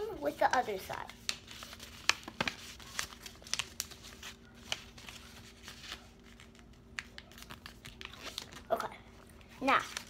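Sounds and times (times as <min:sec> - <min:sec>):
paper being folded and creased: 0:00.2 - 0:08.9, 0:09.5 - 0:10.0.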